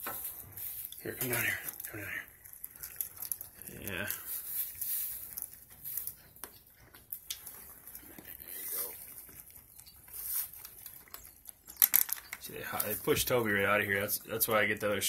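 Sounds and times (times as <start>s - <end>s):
shuffling in straw: 0.0s - 2.1s, 3.6s - 6.3s, 10.0s - 10.8s
goats crunching feed pellets: 0.0s - 15.0s.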